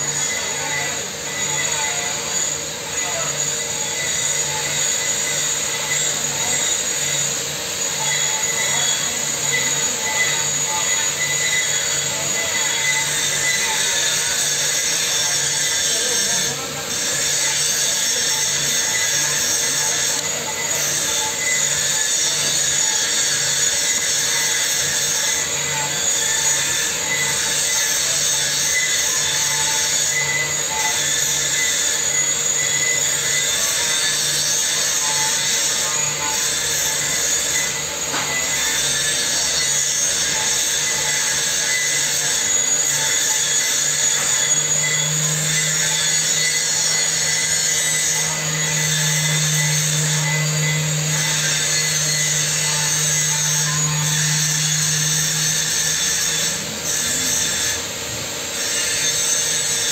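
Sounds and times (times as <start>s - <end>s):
constant tones: 25.3s - 59.3s.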